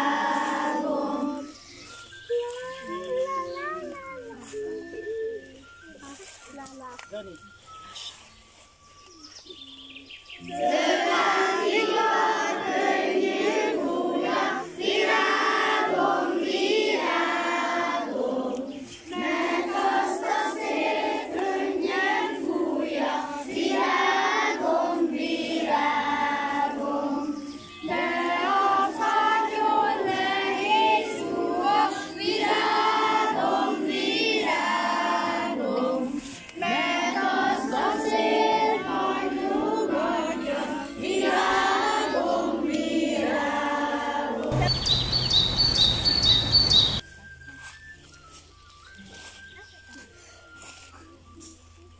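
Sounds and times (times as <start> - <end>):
children singing together: 0.0 - 5.4, 10.4 - 46.6.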